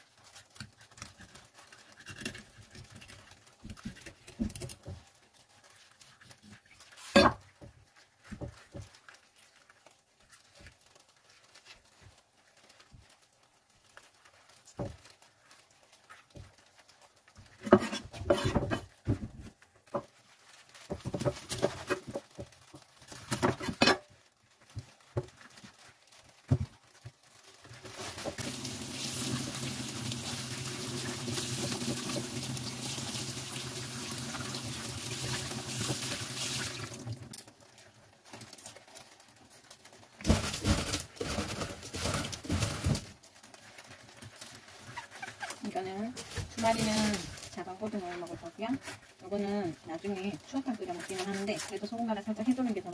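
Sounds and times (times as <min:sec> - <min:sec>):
kitchen tap running: 0:28.0 - 0:37.4
water splashing in steel sink: 0:28.1 - 0:37.4.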